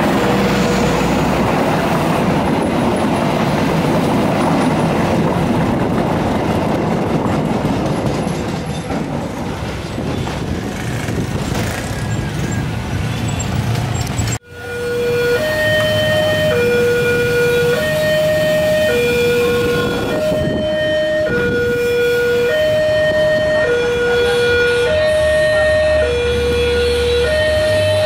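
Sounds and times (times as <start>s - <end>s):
traffic rumble: 0.0s - 28.0s
level crossing two-tone alarm: 14.5s - 28.0s.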